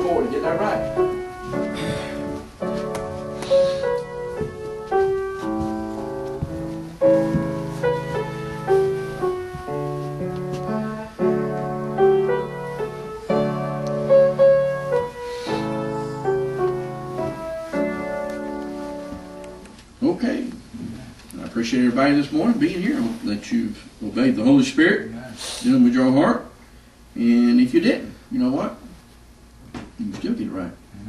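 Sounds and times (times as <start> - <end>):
piano playing slow hymn chords: 0.0 - 19.8.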